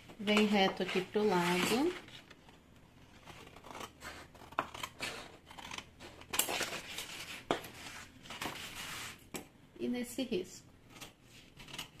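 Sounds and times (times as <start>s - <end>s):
scissors cutting stiff paper: 3.1s - 9.2s.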